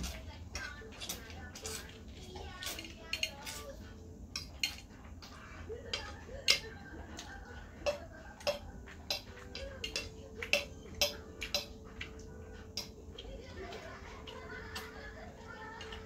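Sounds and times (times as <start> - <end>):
fork scraping ceramic plate: 0.0 - 6.7.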